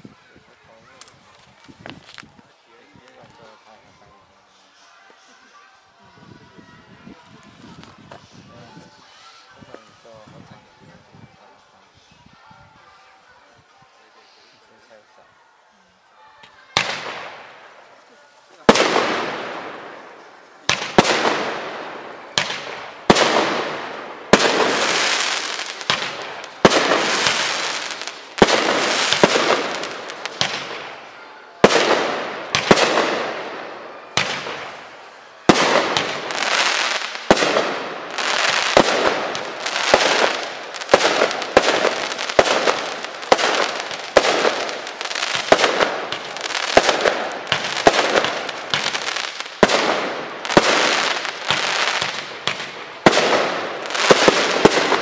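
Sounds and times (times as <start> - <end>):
firework bangs with crackling tails: 16.8 - 17.7, 18.6 - 55.0.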